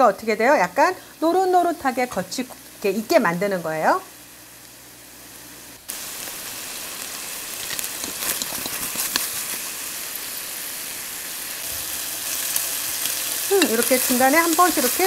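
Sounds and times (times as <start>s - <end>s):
chicken sizzling in pan: 0.0s - 15.0s
spatula scraping pan: 7.5s - 9.6s.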